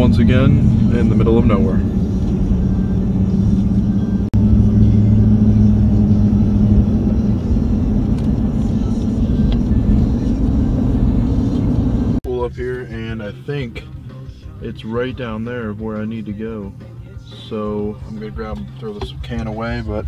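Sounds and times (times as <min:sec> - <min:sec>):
truck engine and tyre drone: 0:00.0 - 0:12.2.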